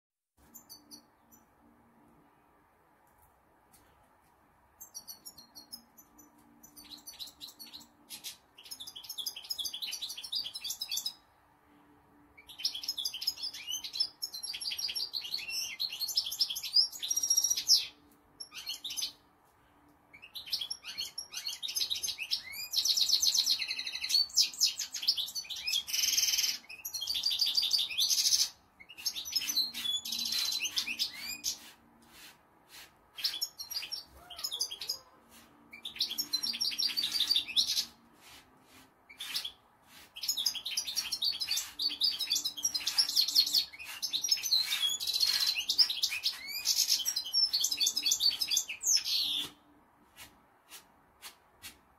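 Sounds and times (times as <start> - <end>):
goldfinch singing: 20.2 - 31.7, 33.2 - 35.2, 40.2 - 49.5.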